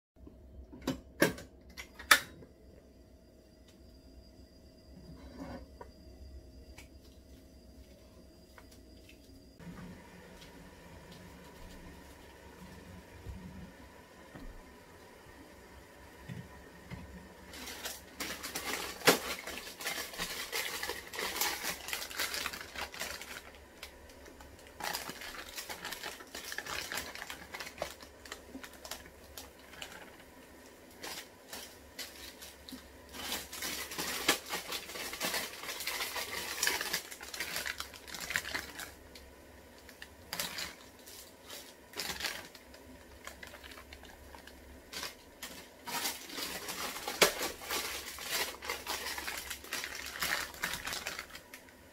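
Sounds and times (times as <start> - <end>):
plastic packets crinkling and tearing: 17.4 - 51.9.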